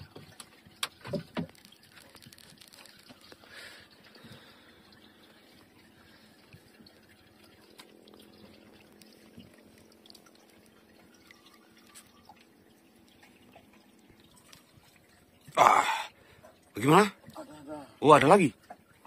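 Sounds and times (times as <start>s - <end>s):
water dripping and lapping: 0.0s - 19.0s
small ticks: 0.3s - 3.5s, 6.4s - 15.0s.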